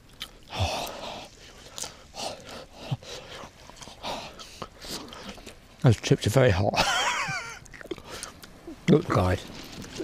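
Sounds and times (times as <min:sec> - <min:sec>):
person chewing: 0:00.0 - 0:05.6, 0:07.6 - 0:08.6.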